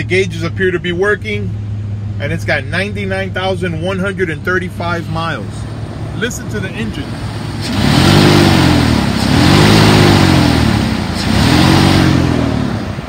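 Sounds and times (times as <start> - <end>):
truck engine revving: 0.0 - 13.0.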